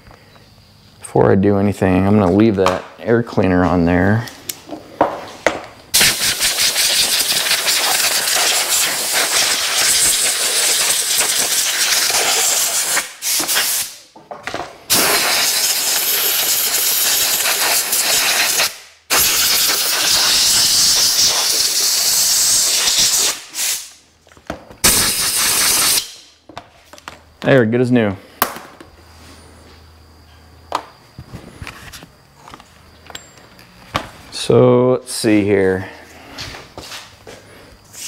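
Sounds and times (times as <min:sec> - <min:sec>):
air blow gun hissing: 0:05.9 - 0:14.1, 0:14.9 - 0:24.0, 0:24.8 - 0:26.2.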